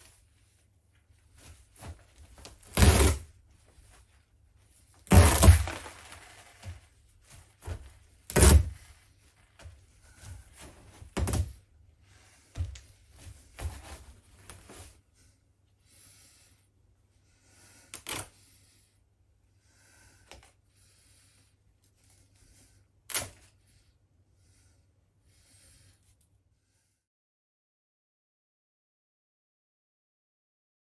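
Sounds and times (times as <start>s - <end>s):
plastic tarp rustling: 5.1s - 6.8s.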